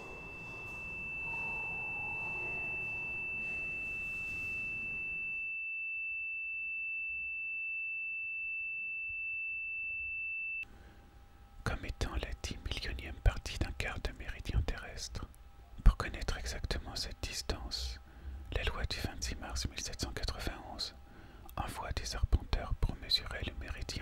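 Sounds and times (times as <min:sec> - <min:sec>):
faint room noise: 0:00.0 - 0:05.4
high-pitched pure tone: 0:00.0 - 0:10.7.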